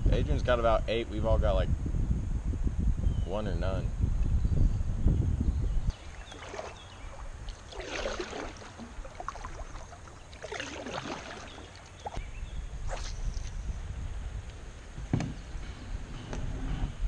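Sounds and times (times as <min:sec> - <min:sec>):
kayak paddle splashing: 0:05.9 - 0:12.2.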